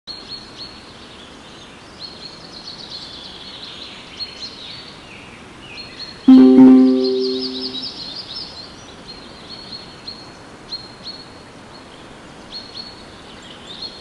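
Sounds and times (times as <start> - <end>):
loud multi-pitched ringing tone: 6.3 - 7.8.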